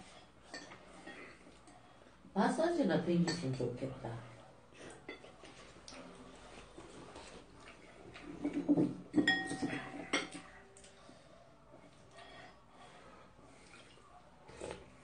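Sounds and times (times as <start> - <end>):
spoons clinking on ceramic bowls: 9.1 - 10.5.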